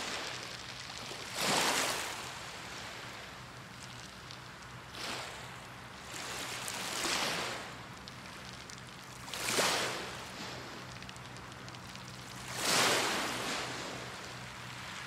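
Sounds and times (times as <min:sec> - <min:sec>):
sea waves washing in: 0:09.2 - 0:11.0, 0:12.4 - 0:15.0.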